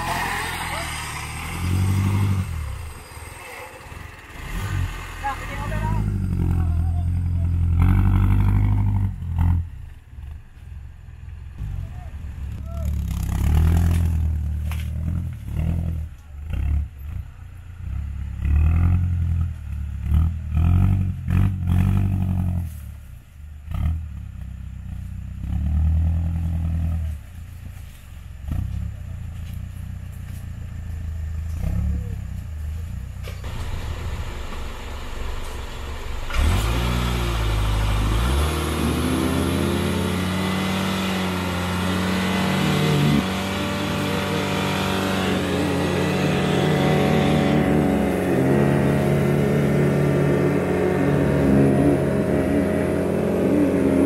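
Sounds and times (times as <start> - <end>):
engine revving hard: 0.0 - 7.0, 36.3 - 54.0.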